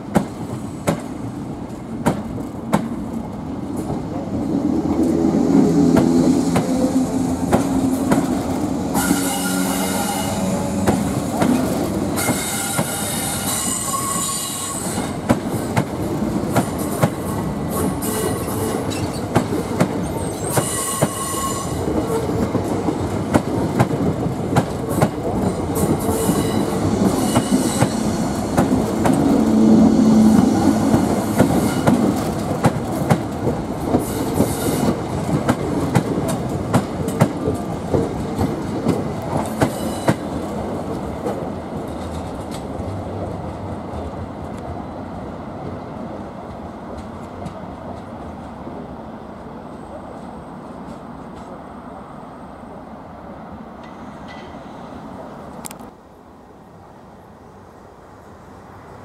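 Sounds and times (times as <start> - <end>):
high-pitched wheel squeal: 9.0 - 10.9, 12.2 - 15.1, 20.1 - 21.9.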